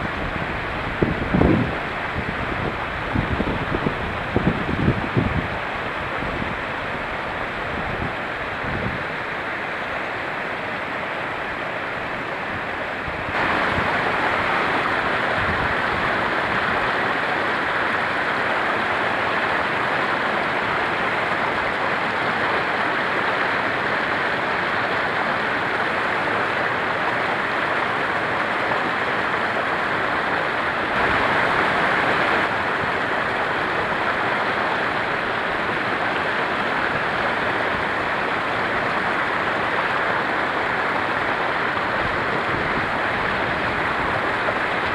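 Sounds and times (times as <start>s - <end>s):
stream rushing over rocks: 0.0s - 44.9s.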